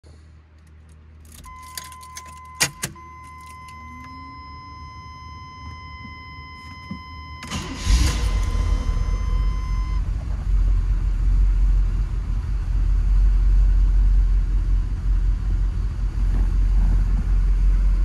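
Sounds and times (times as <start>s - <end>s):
keys jangling and clicking: 0.6s - 3.8s.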